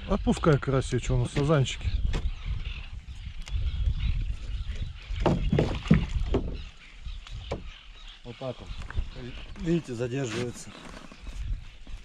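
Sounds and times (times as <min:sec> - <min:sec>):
wind rumble on microphone: 0:00.0 - 0:09.9, 0:10.6 - 0:12.0
handling knocks on boat: 0:05.2 - 0:06.6.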